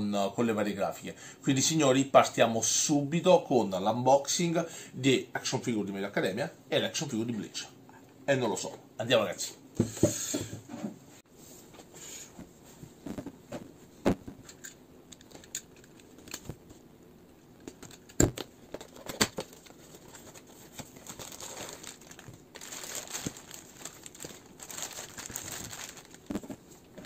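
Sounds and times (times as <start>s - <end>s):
plastic bag crinkling: 18.8s - 27.0s.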